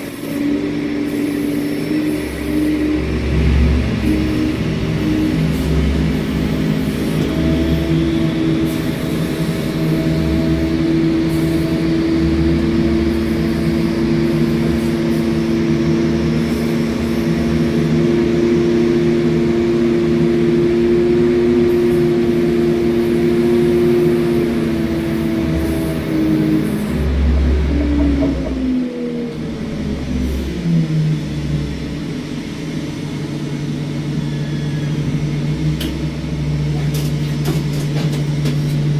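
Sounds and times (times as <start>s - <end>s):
engines droning: 0.0s - 38.9s.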